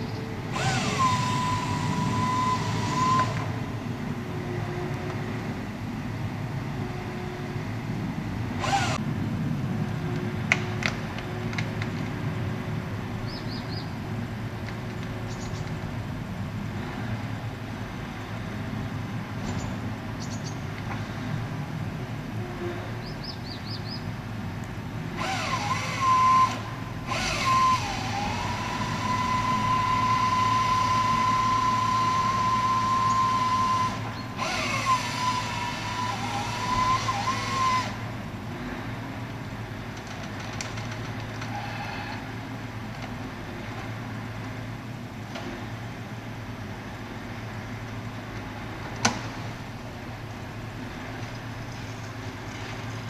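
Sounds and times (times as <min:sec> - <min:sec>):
low engine hum: 0:00.0 - 0:53.0
chainsaw cutting through trunk: 0:00.5 - 0:03.4, 0:25.2 - 0:38.0.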